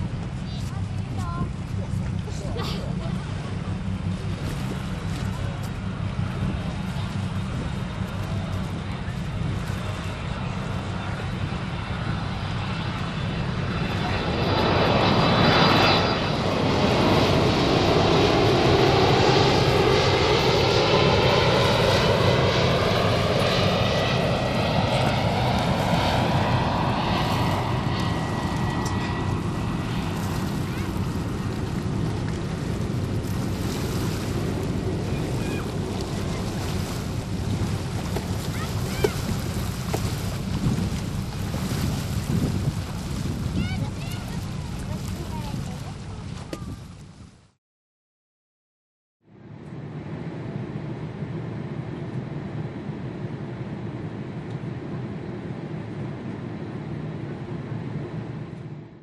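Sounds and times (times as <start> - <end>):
jet engines roaring: 0.0 - 46.4, 49.4 - 59.0
airliner cabin noise: 0.0 - 47.2
wind on microphone: 0.0 - 47.5.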